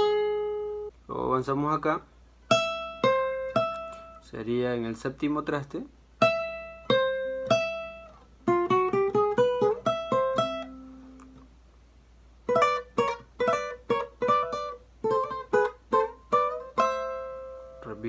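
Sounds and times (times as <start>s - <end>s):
acoustic guitar single notes: 0.0s - 1.0s, 2.4s - 4.3s, 6.2s - 11.5s, 12.4s - 18.0s.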